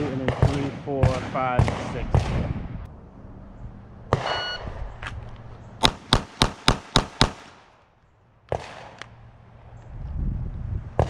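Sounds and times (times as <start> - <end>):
rapid pistol shots: 0.0 - 2.5, 5.8 - 7.8, 8.5 - 9.0.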